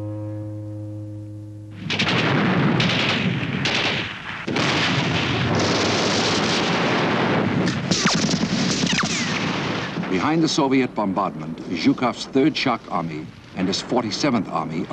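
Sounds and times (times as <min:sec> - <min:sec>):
sharp gunshot cracks: 0:01.8 - 0:10.3
heavy gunfire: 0:01.8 - 0:10.7
shells exploding: 0:01.8 - 0:14.9.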